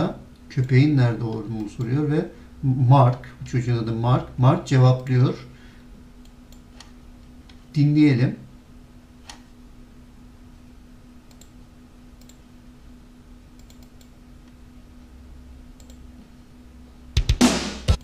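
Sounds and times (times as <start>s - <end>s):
low electrical hum: 0.0s - 18.0s
computer mouse clicks: 6.2s - 7.6s, 11.3s - 11.6s, 12.2s - 12.4s, 13.6s - 14.6s, 15.8s - 16.0s.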